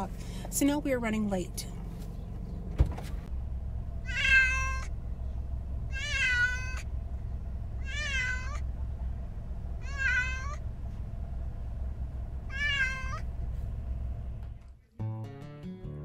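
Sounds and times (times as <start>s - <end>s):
car cabin road rumble: 0.0s - 14.9s
cat meowing: 4.0s - 4.9s, 5.9s - 6.9s, 7.8s - 8.6s, 9.8s - 10.6s, 12.5s - 13.2s.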